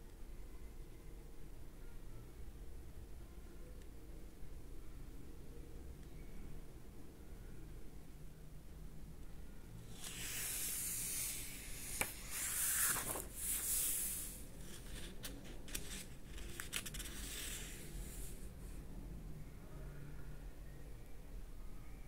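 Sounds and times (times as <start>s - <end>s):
book pages turning: 9.9s - 18.4s
paper crackles: 10.0s - 17.8s.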